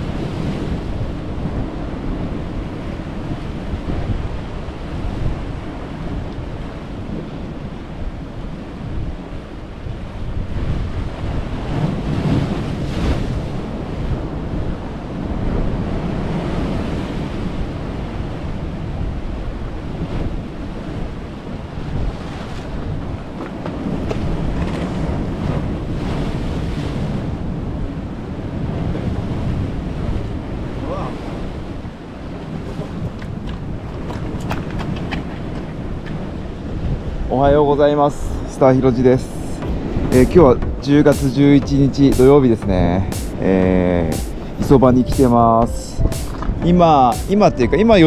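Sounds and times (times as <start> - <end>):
wind buffeting microphone: 0.0 - 48.0
waves breaking against rocks: 28.5 - 37.3.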